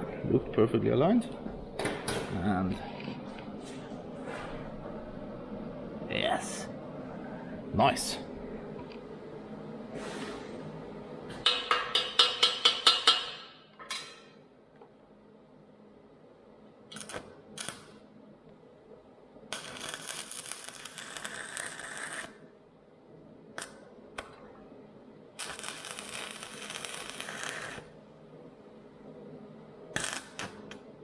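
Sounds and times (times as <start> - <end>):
welding arc crackling and hissing: 16.9 - 18.0, 19.5 - 22.5, 25.3 - 28.0, 29.9 - 30.8.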